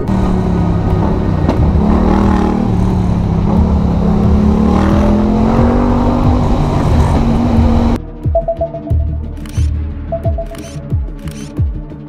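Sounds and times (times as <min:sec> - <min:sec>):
motorcycle engine running: 0:00.0 - 0:08.0.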